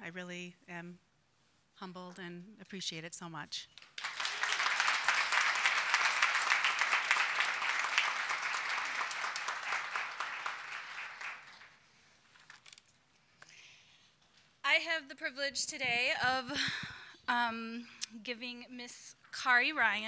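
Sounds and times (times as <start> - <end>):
audience applauding: 3.8 - 11.8.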